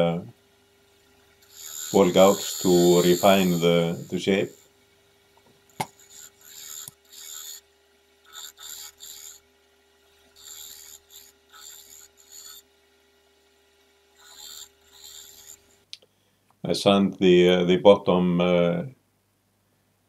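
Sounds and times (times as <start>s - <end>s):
lathe humming: 0.0s - 15.9s
gouge scraping wood: 1.4s - 4.6s, 5.7s - 7.6s, 8.3s - 9.4s, 10.2s - 12.7s, 14.2s - 15.8s.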